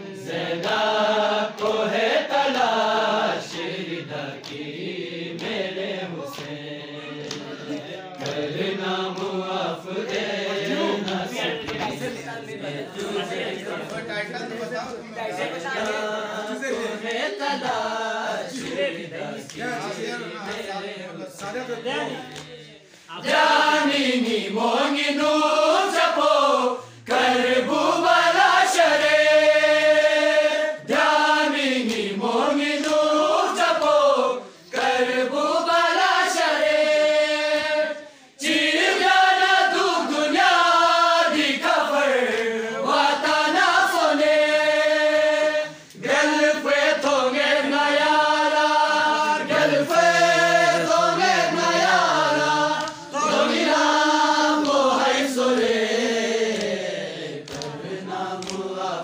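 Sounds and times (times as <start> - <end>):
men chanting a lament in unison: 0.0 - 59.0
breaths between sung lines: 22.8 - 23.2, 26.8 - 27.1, 38.0 - 38.4, 45.7 - 46.0.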